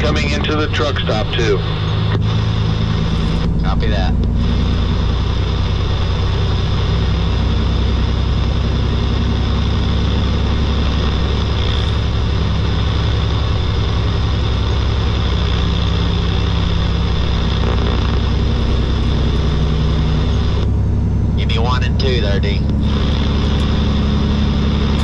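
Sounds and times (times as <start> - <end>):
road noise: 0.0 - 25.0
vehicle engine drone: 0.0 - 25.0.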